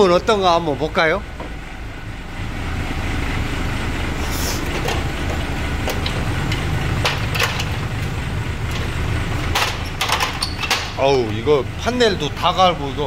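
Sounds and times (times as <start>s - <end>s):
low mechanical rumble: 0.0s - 13.0s
sharp clicks and knocks: 4.6s - 11.4s.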